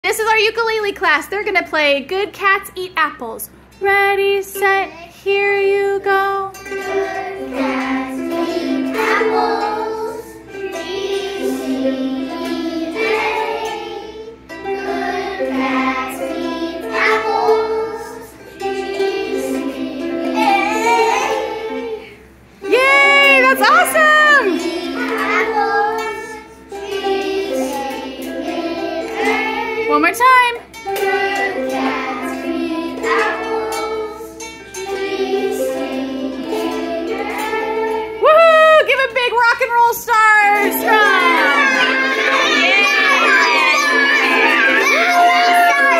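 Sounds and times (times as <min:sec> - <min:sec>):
ukuleles strumming: 0:03.5 - 0:45.9
children singing: 0:06.5 - 0:29.9, 0:30.8 - 0:38.3, 0:40.6 - 0:45.9.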